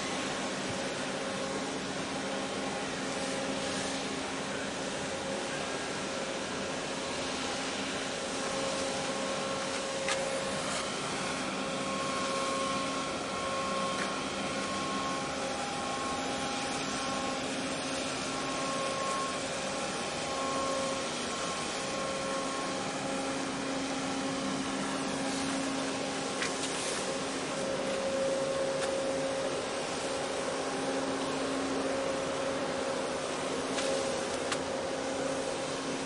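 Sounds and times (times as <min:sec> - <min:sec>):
ship machinery drone: 0:00.0 - 0:36.0.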